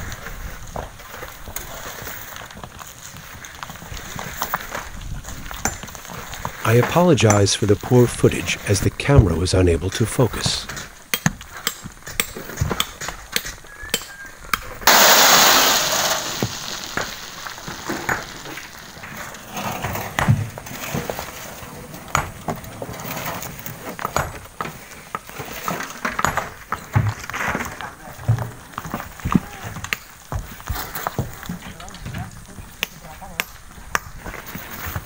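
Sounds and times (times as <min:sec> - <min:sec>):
rockfall crash: 0:14.8 - 0:21.4
stones knocking and clinking: 0:14.9 - 0:21.3.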